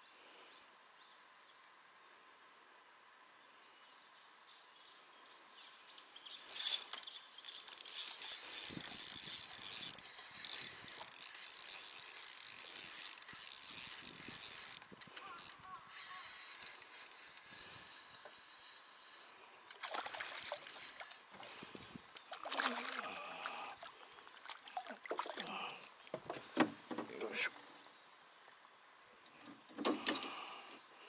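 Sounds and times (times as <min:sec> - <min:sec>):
fishing reel whirring rattle: 0:06.5 - 0:18.8.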